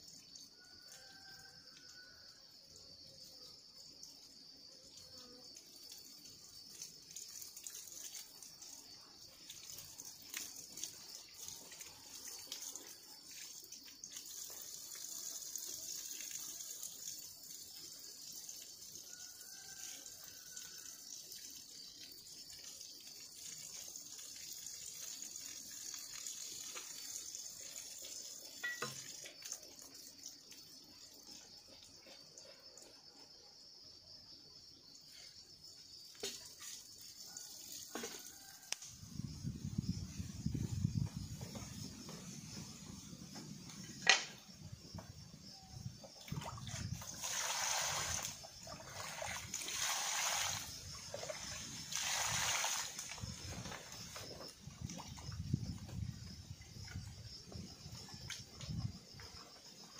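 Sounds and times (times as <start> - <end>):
high drone of insects: 0.0 - 59.9
water splashing from a pipe: 5.9 - 31.5, 36.1 - 39.0, 46.0 - 57.0.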